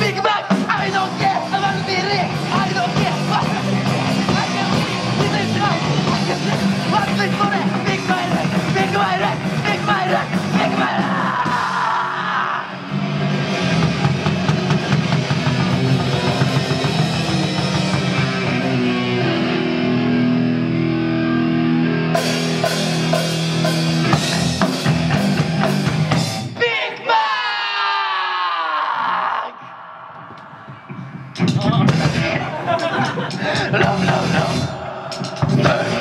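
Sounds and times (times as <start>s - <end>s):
rock band playing: 0.0s - 27.1s, 30.1s - 36.0s
person yelling: 8.8s - 12.8s, 26.6s - 29.8s.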